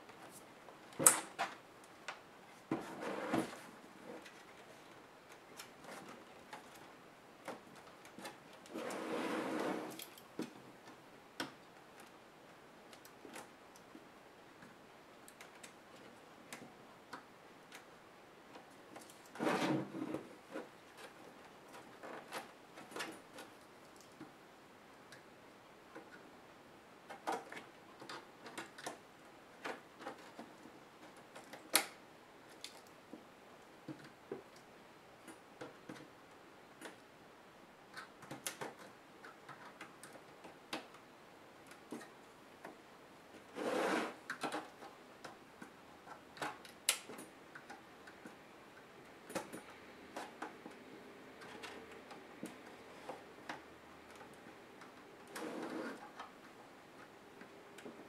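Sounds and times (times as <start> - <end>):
scraping rustles: 2.5 - 10.2, 18.9 - 23.6, 43.4 - 44.7.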